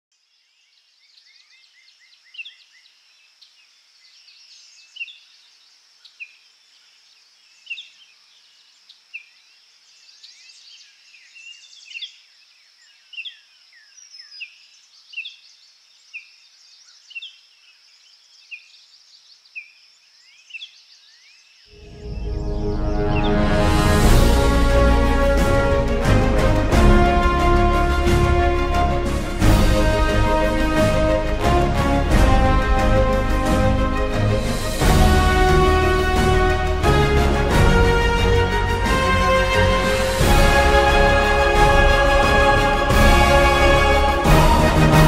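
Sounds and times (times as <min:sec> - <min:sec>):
songbirds chirping: 0:00.1 - 0:23.8.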